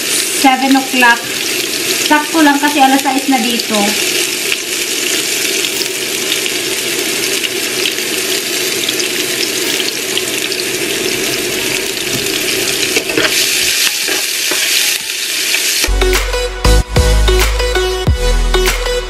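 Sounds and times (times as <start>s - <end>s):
onion sizzling in a frying pan: 0.0s - 16.0s
metal spatula scraping pan: 13.0s - 15.0s.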